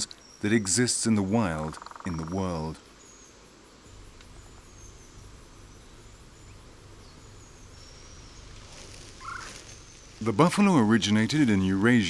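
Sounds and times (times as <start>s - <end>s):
low steady rumble: 3.9s - 11.9s.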